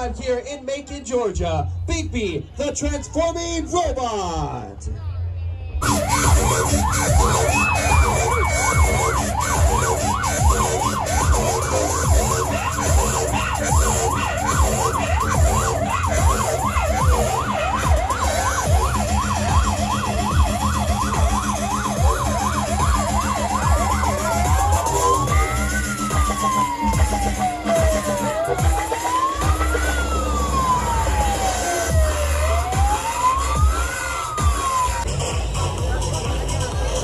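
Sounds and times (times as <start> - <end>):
siren yelping: 5.8 - 35.1.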